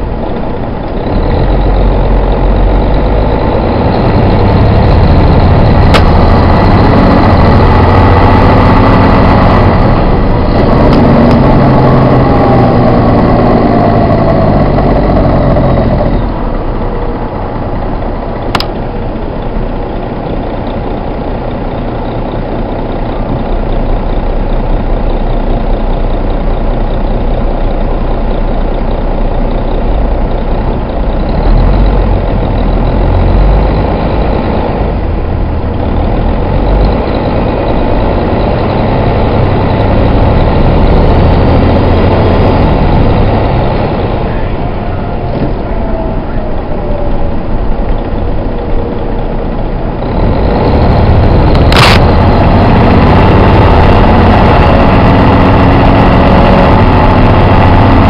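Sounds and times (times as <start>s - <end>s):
diesel engine rumble: 0.0s - 58.0s
sharp click: 18.5s - 18.8s.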